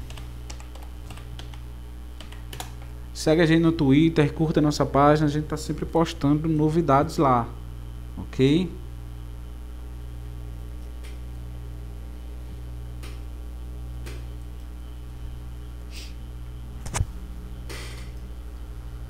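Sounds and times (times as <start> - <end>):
low electrical hum: 0.0 - 19.0
short hisses: 15.9 - 16.2.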